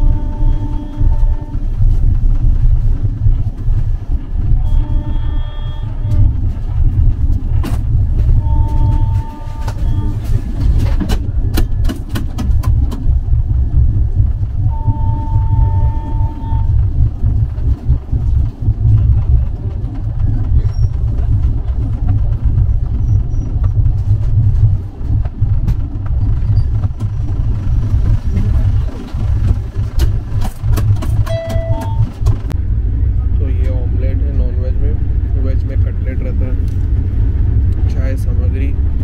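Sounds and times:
train rumble: 0:00.0 - 0:39.0
wheel rattles and clicks: 0:06.1 - 0:15.0, 0:16.2 - 0:32.6
brief steady tone: 0:08.4 - 0:10.5, 0:14.6 - 0:16.8, 0:31.2 - 0:32.2.

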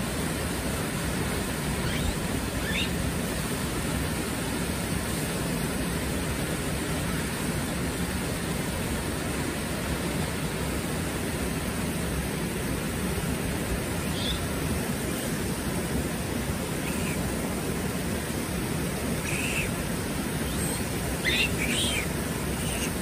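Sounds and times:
river rushing over rocks: 0:00.0 - 0:23.0
faint high chirp: 0:01.8 - 0:02.9, 0:14.1 - 0:14.4, 0:16.8 - 0:17.2, 0:19.2 - 0:19.7, 0:20.4 - 0:23.0.

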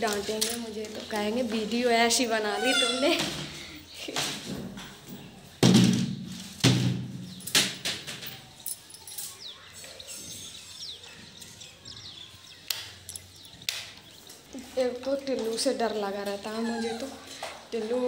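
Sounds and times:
loud thumps: 0:05.6 - 0:08.3.

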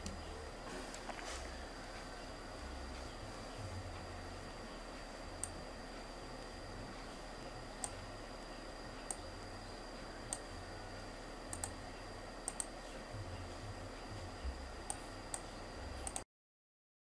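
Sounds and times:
faint hiss with high tone: 0:00.0 - 0:16.2
computer mouse clicking: 0:07.8 - 0:08.1, 0:09.0 - 0:09.3, 0:10.3 - 0:10.5, 0:11.5 - 0:11.8, 0:12.4 - 0:12.8, 0:14.8 - 0:16.2.

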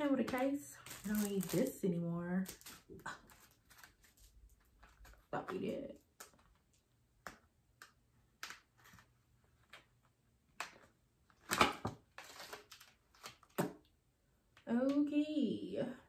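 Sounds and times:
plastic packaging rustle: 0:00.3 - 0:06.8, 0:12.1 - 0:13.6
plastic packaging clicks and taps: 0:07.2 - 0:08.7.

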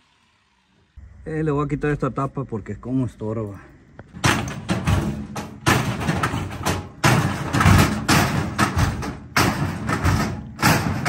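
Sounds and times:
pry bar clanking on sheet metal: 0:04.2 - 0:11.0.

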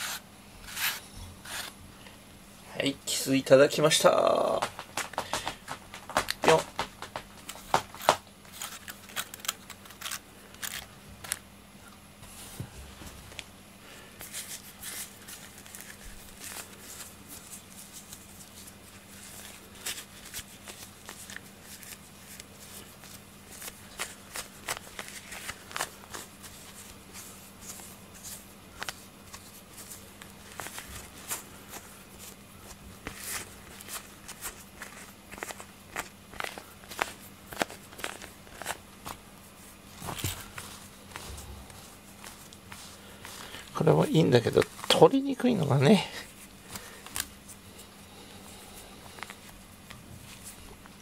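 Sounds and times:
clicks and rustles of brush handling: 0:04.0 - 0:11.4.

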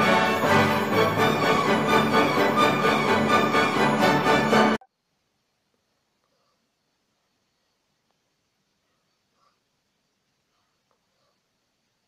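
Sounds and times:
orchestral background music: 0:00.0 - 0:04.8.

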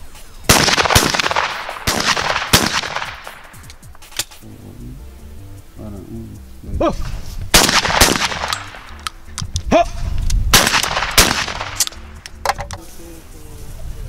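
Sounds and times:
shotgun shots echoing: 0:00.5 - 0:03.8, 0:07.5 - 0:09.0, 0:10.5 - 0:12.1
person shouting call: 0:09.7 - 0:10.0.

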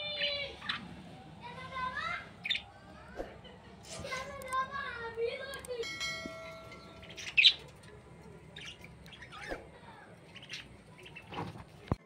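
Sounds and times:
budgerigars chirping and squawking: 0:00.1 - 0:00.9, 0:02.4 - 0:02.8, 0:06.7 - 0:07.8, 0:08.5 - 0:11.6.

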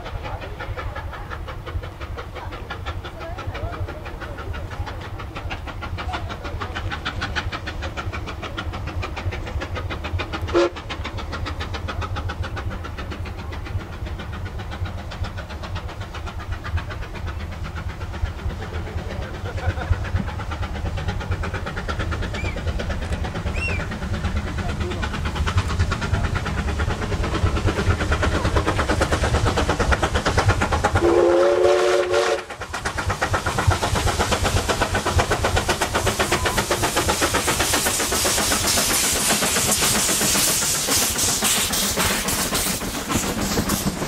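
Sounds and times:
distant steam locomotive chuffing: 0:00.0 - 0:44.0.

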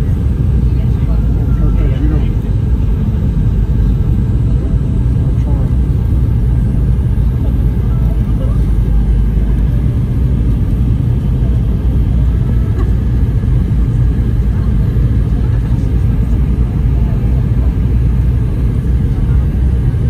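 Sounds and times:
airliner engines rumbling in cabin: 0:00.0 - 0:20.0.

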